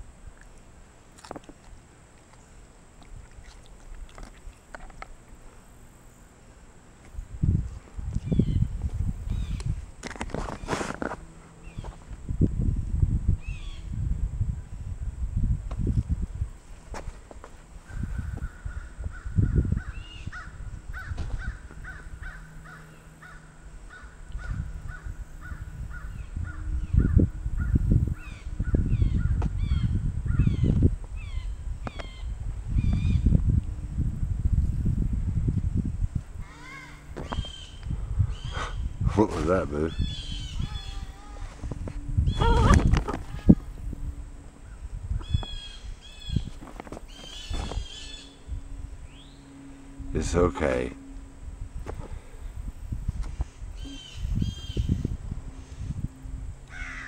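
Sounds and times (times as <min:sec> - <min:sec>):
close rustling: 0:07.6 - 0:12.2, 0:46.2 - 0:48.5
birds calling rapidly: 0:17.9 - 0:33.3, 0:36.4 - 0:41.4, 0:44.6 - 0:49.6, 0:53.7 - 0:55.2
descending squawks: 0:36.4 - 0:38.9, 0:39.9 - 0:43.9, 0:47.1 - 0:52.6, 0:53.7 - 0:55.8.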